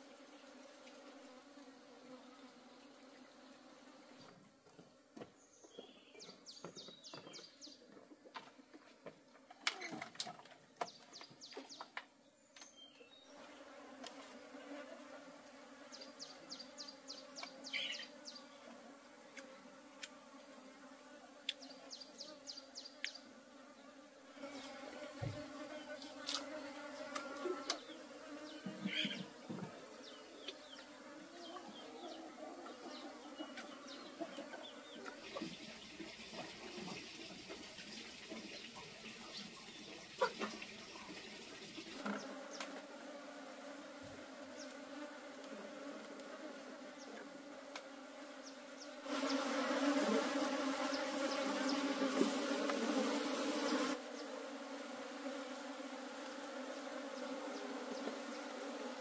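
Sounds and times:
bees buzzing: 0:13.3 - 0:59.0.

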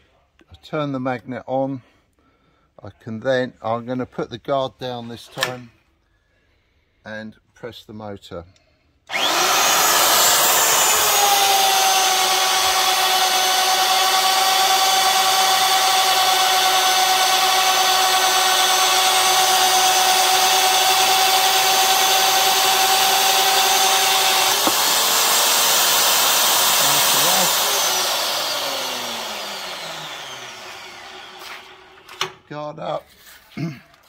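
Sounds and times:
magnetic drill boring into steel: 0:09.1 - 0:32.0.

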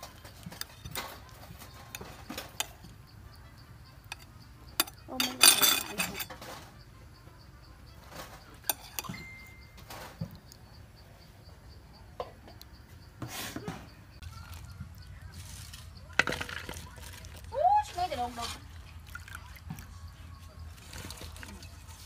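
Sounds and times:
metal spoon scraping ceramic plate: 0:04.1 - 0:06.6, 0:08.1 - 0:09.4.

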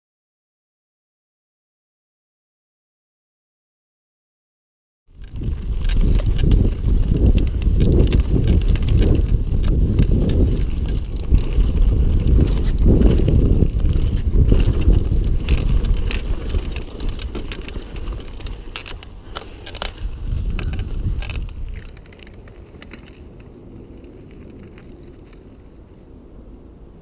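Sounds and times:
bike clicks and rattles: 0:05.1 - 0:25.8
wind buffeting microphone: 0:05.1 - 0:27.0.

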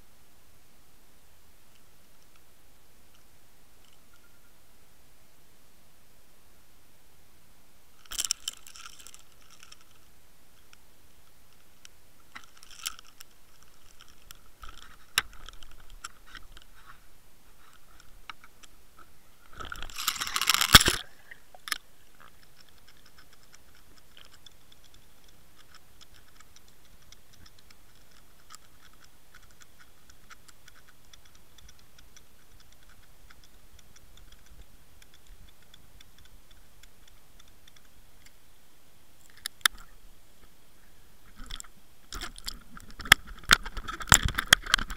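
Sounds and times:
fast steady ticking: 0:21.6 - 0:38.4.

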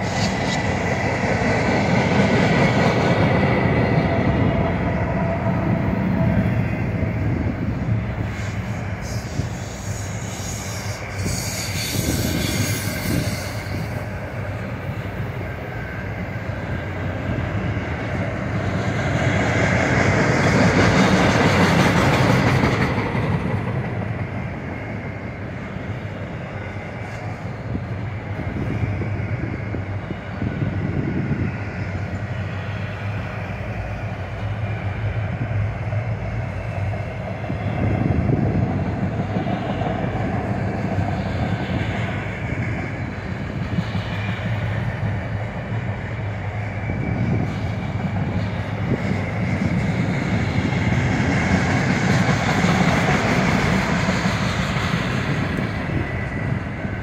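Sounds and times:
freight train wheels clattering: 0:17.2 - 0:25.2, 0:35.8 - 0:57.0.

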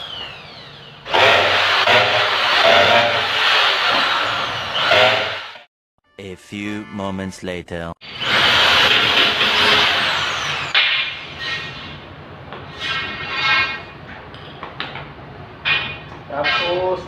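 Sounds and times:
electric drill boring into concrete: 0:00.0 - 0:05.6, 0:08.0 - 0:11.7.

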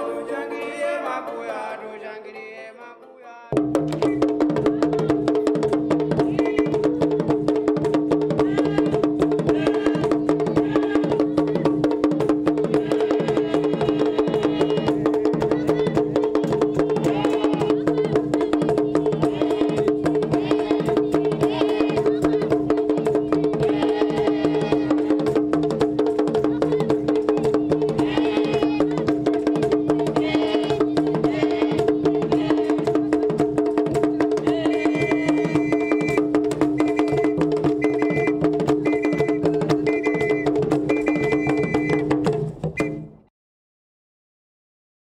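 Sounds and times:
voices singing: 0:00.0 - 0:43.1
drums beating fast rhythm: 0:03.5 - 0:43.2
high note blasts: 0:36.8 - 0:42.1.

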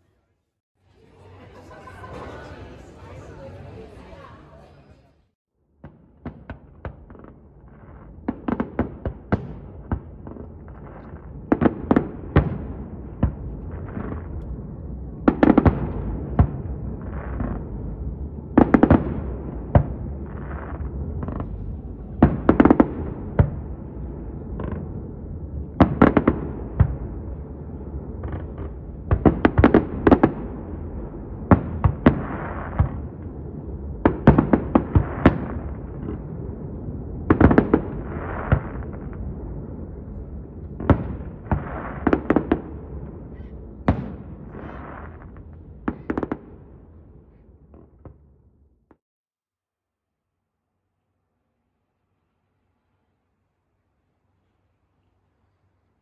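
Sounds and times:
fireworks bangs: 0:05.8 - 0:48.4
steady low rumble: 0:19.2 - 0:29.2.

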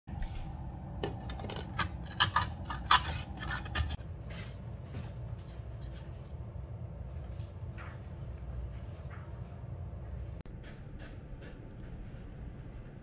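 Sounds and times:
steady low hum: 0:00.1 - 0:13.0
dishes and cookware clattering: 0:01.0 - 0:04.0.

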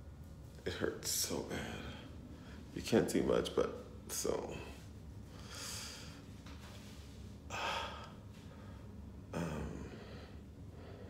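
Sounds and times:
man breathing heavily: 0:04.5 - 0:11.0.

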